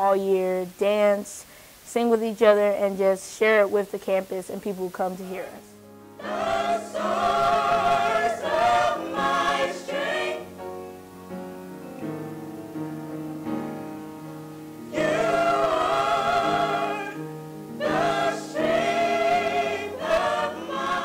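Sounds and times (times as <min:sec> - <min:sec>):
gospel choir singing: 0:05.5 - 0:10.7, 0:14.8 - 0:21.0.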